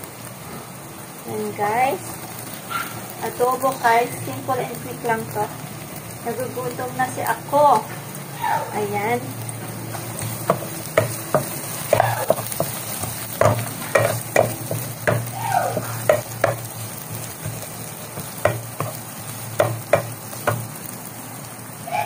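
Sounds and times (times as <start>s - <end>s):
vegetables sizzling in oil: 0.0s - 22.0s
wooden spatula scraping a pan: 9.9s - 20.7s.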